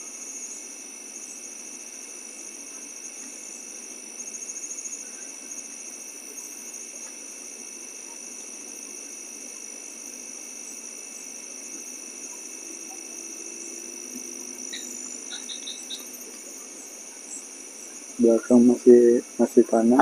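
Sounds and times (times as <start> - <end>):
insects chirring: 0.0 - 20.0
rapid pulsing insect trill: 0.0 - 20.0.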